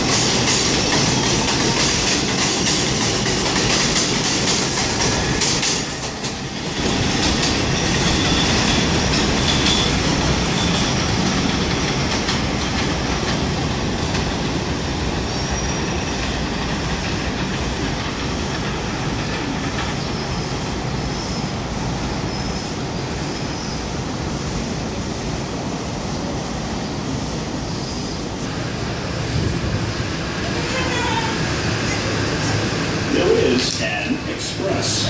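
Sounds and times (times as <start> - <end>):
train wheels rumbling on rails: 0.0 - 35.0
faint high wheel squeals: 15.3 - 16.2.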